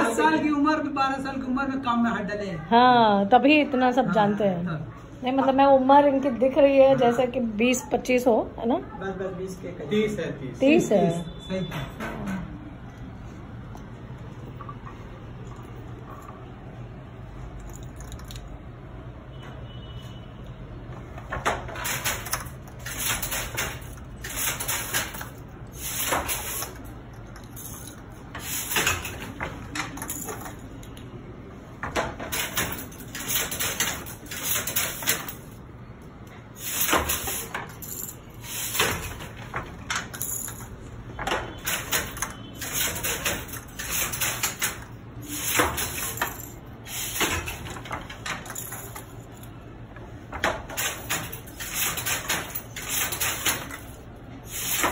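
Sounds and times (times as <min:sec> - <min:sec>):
wooden loom clacking and rattling: 0:21.2 - 0:26.8, 0:41.2 - 0:46.4, 0:50.3 - 0:54.9.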